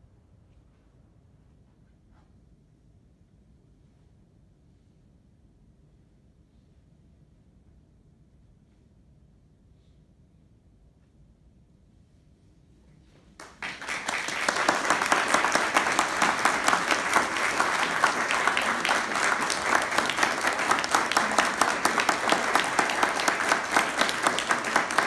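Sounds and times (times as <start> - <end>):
audience applause: 13.4 - 25.0.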